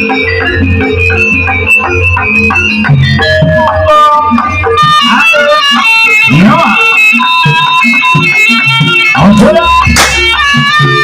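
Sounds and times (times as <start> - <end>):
sharp cymbal crash: 10.0 - 10.4.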